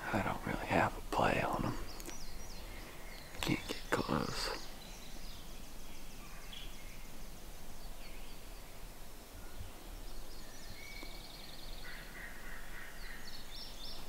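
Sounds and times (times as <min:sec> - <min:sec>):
outdoor background noise: 0:00.0 - 0:14.0
songbird trills: 0:00.0 - 0:14.0
distant turkey gobbling: 0:11.8 - 0:13.3.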